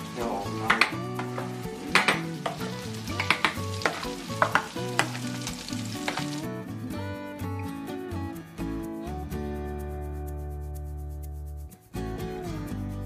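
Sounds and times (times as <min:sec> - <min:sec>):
fish sizzling in a pan: 0:00.0 - 0:06.6
soft background music: 0:00.0 - 0:13.0
utensil knocking on steel pot: 0:00.6 - 0:05.4.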